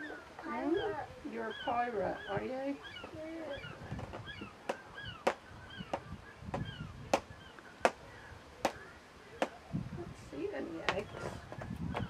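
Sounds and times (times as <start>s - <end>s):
chirping bird calls: 0.0s - 12.0s.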